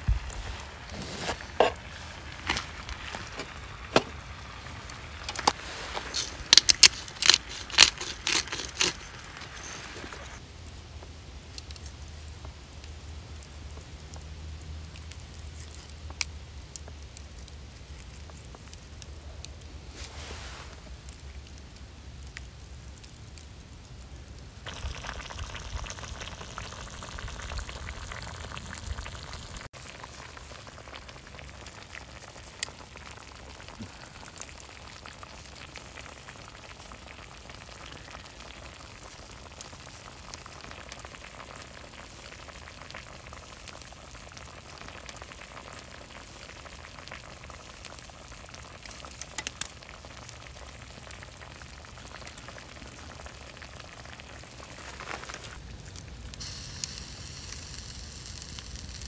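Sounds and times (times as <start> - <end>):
campfire crackles and pops: 0.0 - 59.0
food sizzling in skillet: 56.4 - 59.0.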